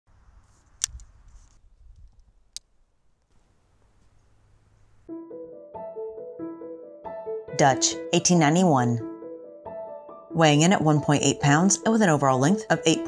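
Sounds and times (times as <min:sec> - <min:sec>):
music with held notes: 0:05.1 - 0:13.0.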